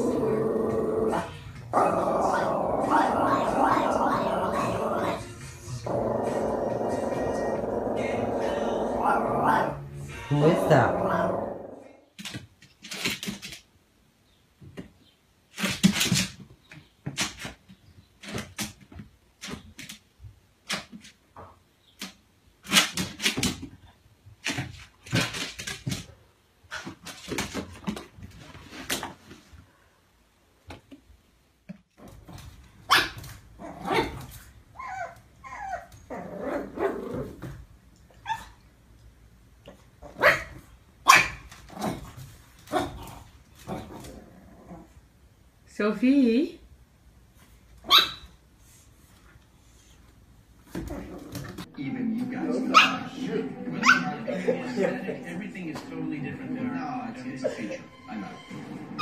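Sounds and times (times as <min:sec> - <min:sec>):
dog whining: 0:34.8 - 0:37.0
small dogs barking: 0:40.1 - 0:41.5, 0:47.8 - 0:48.3.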